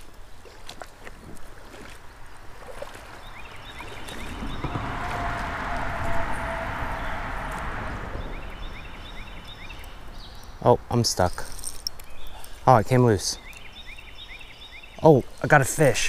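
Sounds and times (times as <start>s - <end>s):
vehicle passing by: 3.5s - 10.6s.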